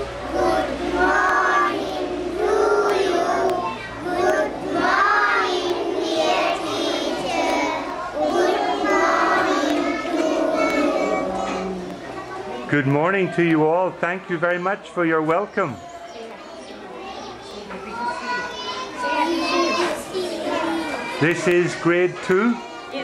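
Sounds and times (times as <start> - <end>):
children singing together: 0.0 - 12.4, 18.2 - 21.5.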